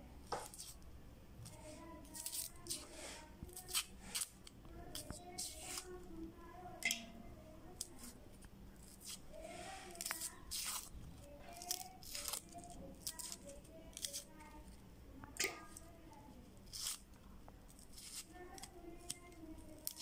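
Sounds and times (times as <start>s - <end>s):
onion skins crackling as peeled: 0.4s - 6.0s, 8.8s - 9.3s, 9.9s - 14.8s, 16.6s - 20.0s.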